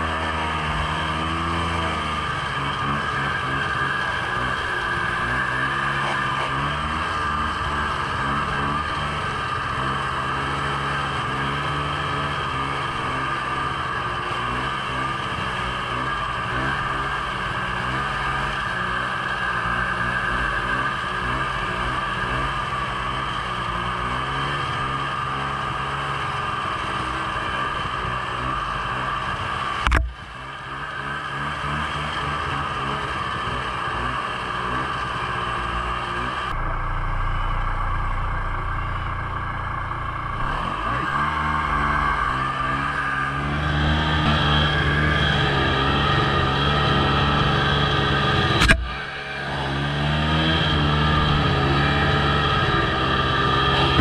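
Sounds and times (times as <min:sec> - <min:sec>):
snowmobile engine running: 0:00.0 - 0:54.0
sharp knock: 0:29.8 - 0:30.2, 0:48.6 - 0:48.9.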